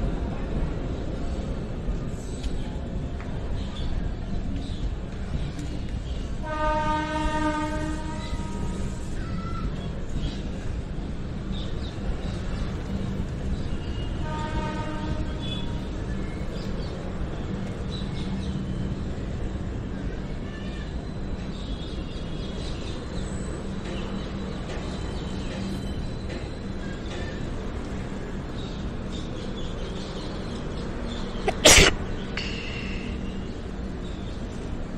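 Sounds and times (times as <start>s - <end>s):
train wheels rumbling on track: 0.0s - 34.9s.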